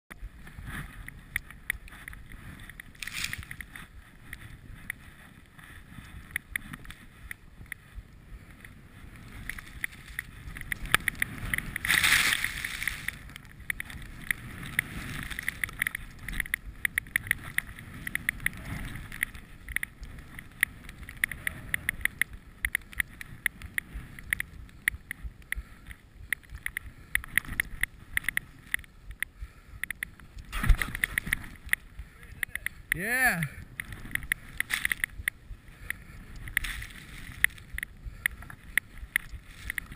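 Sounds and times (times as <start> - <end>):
skis swishing through powder snow: 0.2 - 16.3, 35.5 - 37.7.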